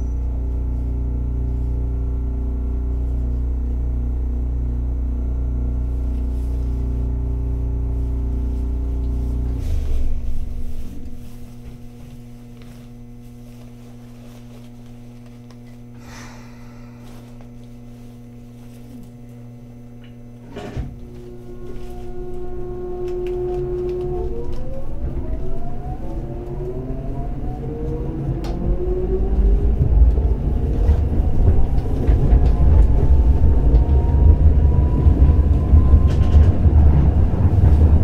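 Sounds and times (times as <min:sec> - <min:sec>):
electrical hum: 0:00.0 - 0:38.0
tram humming: 0:00.0 - 0:38.0.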